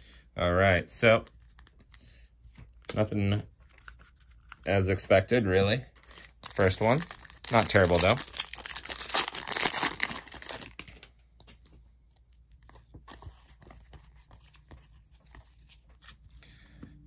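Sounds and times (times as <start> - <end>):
foil wrapper tearing and crinkling: 6.0 - 11.1.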